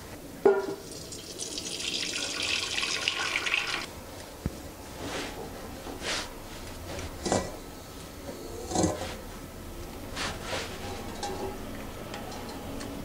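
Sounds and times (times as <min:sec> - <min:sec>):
liquid splashing into colander: 0:00.5 - 0:03.9.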